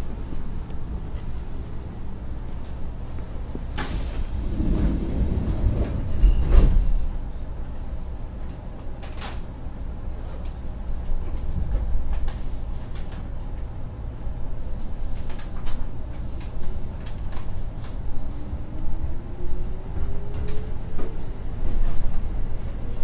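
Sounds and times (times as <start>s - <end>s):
train low rumble: 0.0s - 23.0s
train doors air rush: 3.5s - 7.2s.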